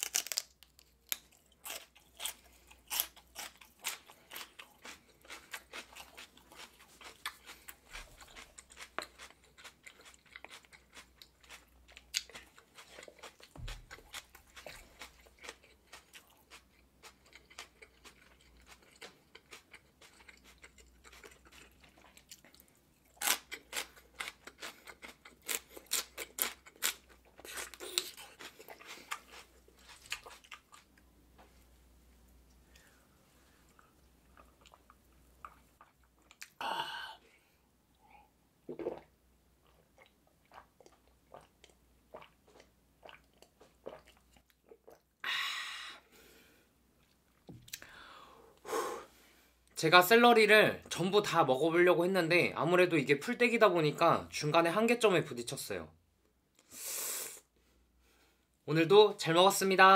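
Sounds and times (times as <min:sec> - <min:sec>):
celery crunching being chewed: 0:00.0 - 0:31.0, 0:39.6 - 0:45.0.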